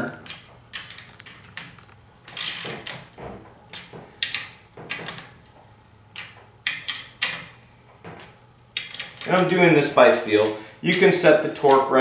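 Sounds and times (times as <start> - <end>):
ratchet wrench clicking: 0.8 - 3.0.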